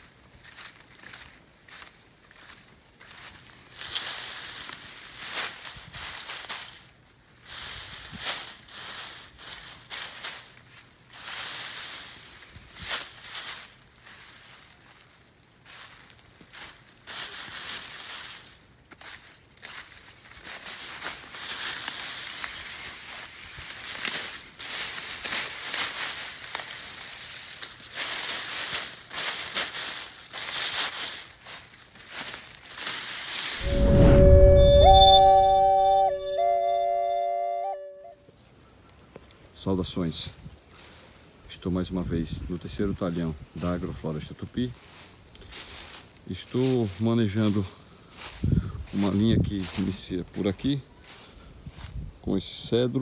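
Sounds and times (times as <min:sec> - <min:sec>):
rustling and crunching of dry grass: 0:00.0 - 0:34.7, 0:38.4 - 0:53.0.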